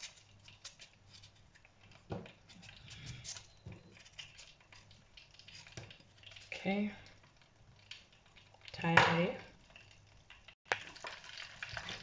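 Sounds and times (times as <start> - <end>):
deep fryer bubbling: 0.0 - 12.0.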